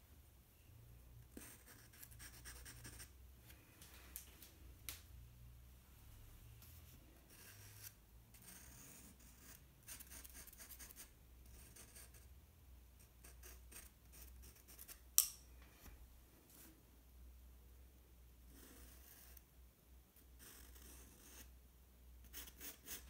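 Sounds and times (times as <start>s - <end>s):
pencil scratching on paper: 1.3s - 3.1s, 7.2s - 12.3s, 13.0s - 15.0s, 18.5s - 19.4s, 20.4s - 21.5s, 22.2s - 23.0s.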